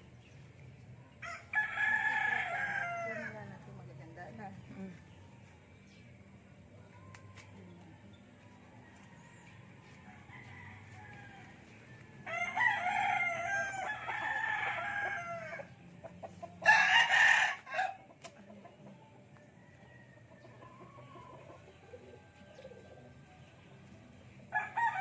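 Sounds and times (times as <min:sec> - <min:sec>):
rooster crowing: 0:01.2 - 0:03.4, 0:10.1 - 0:15.7, 0:16.6 - 0:18.0, 0:24.5 - 0:25.0.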